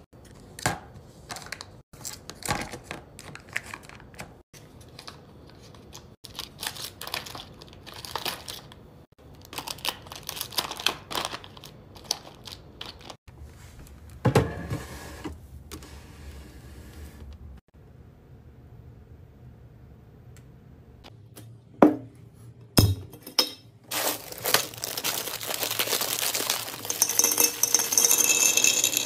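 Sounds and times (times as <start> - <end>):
plastic wrappers crinkling: 4.8 - 13.2, 23.9 - 27.5.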